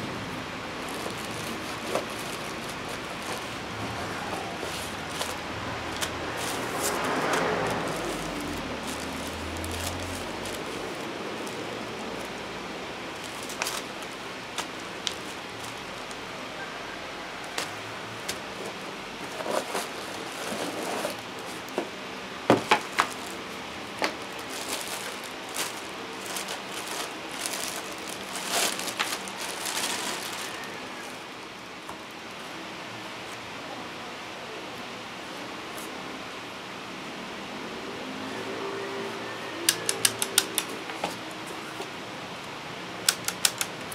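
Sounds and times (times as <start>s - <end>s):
plastic bag crinkling: 0.6s - 16.3s, 17.4s - 21.8s, 22.5s - 31.3s.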